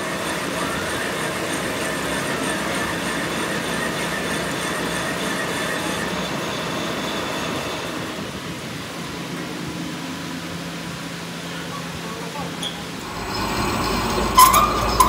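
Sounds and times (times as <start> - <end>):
metal lathe grinding: 0.0 - 8.2, 12.9 - 15.0
thin high whine: 0.0 - 15.0.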